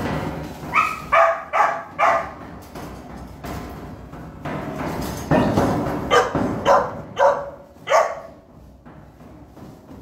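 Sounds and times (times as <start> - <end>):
puppy barking: 0.7 - 2.4, 6.1 - 8.4.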